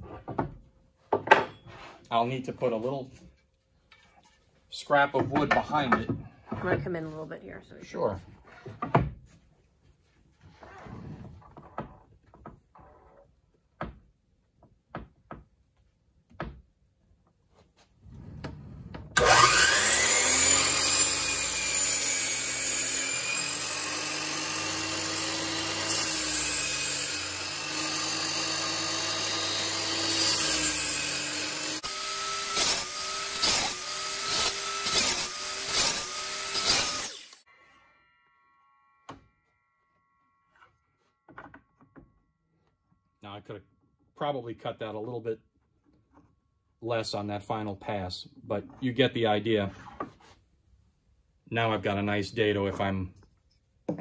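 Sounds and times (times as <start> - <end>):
miter saw cutting wood: 19.2 - 39.6.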